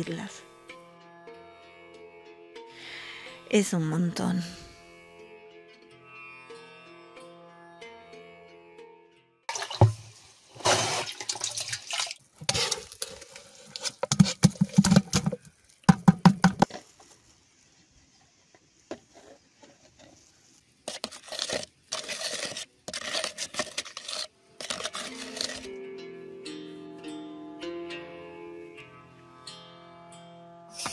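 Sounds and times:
metal scoop scraping barrel: 9.5 - 16.8, 20.9 - 25.7
powder scraping and rustling: 9.5 - 25.7.

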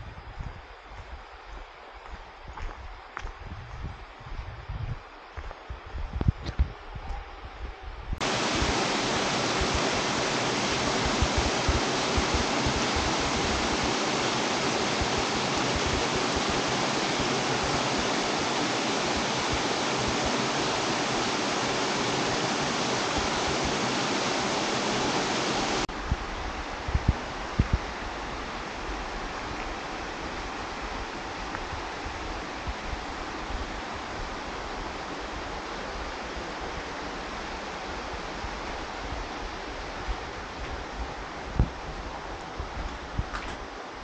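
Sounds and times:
water rushing over rocks: 8.2 - 25.9.

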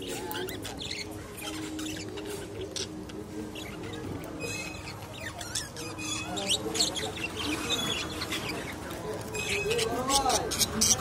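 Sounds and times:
budgerigars chirping and chattering: 0.0 - 11.0.

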